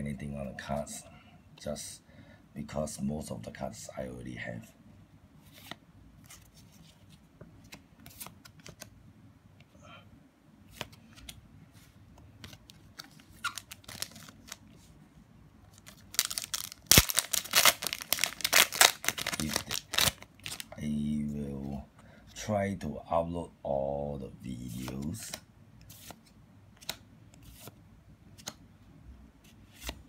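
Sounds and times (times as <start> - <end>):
cards sliding and flipping: 5.4 - 8.9, 10.7 - 14.9, 24.6 - 27.8, 28.4 - 28.6, 29.4 - 30.0
foil wrapper crinkling: 13.4 - 14.6, 15.8 - 20.8.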